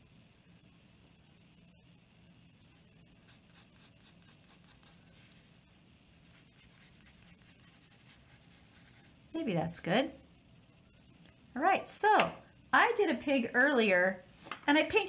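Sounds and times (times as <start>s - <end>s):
pencil scratching on paper: 3.2s - 5.4s, 6.3s - 9.2s.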